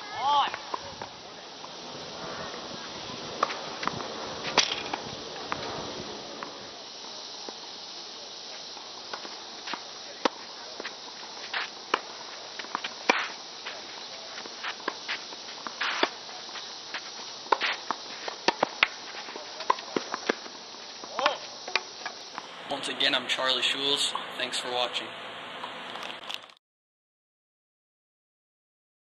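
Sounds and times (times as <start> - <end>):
steady high hiss: 0.0 - 26.3
tennis ball bouncing: 0.4 - 6.6, 9.1 - 24.8
shoes scuffing on court: 0.4 - 6.7, 8.8 - 24.9
racket striking tennis ball: 2.6 - 6.6, 15.6 - 16.3, 16.9 - 20.5, 22.4 - 24.9.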